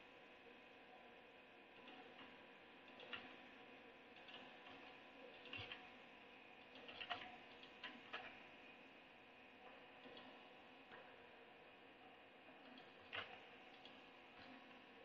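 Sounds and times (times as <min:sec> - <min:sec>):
computer keyboard clicks: 0:03.0 - 0:03.3.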